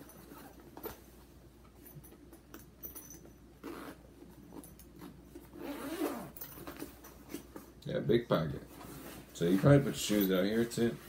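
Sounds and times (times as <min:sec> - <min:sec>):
zipper being worked: 0:00.1 - 0:00.6, 0:03.6 - 0:06.8.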